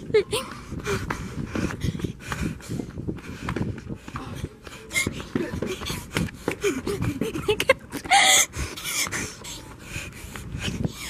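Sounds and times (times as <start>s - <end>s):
breathing of people running: 0.0s - 11.0s.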